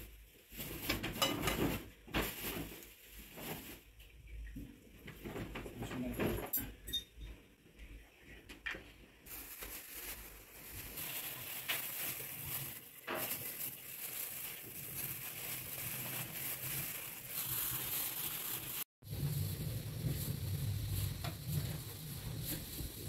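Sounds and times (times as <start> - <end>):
gloved hand kneading minced meat: 9.2 - 23.0.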